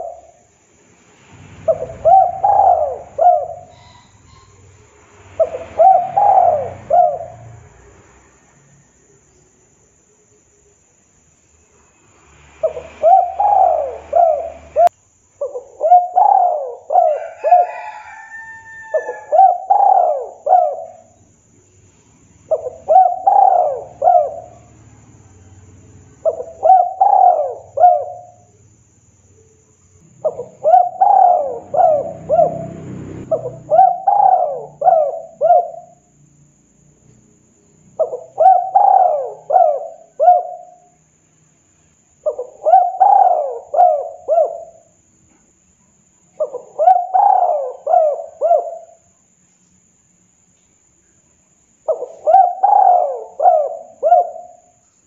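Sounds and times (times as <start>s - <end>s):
dove cooing: 0.0s - 0.4s, 1.6s - 4.8s, 5.4s - 7.6s, 12.6s - 21.2s, 22.5s - 24.8s, 26.2s - 28.5s, 30.1s - 36.1s, 37.9s - 40.9s, 42.2s - 45.0s, 46.4s - 49.1s, 51.8s - 54.8s.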